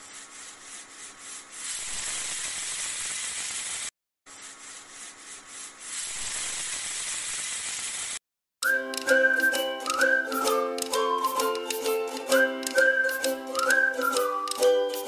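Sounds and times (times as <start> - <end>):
steady hissing noise: 0.0 - 8.2.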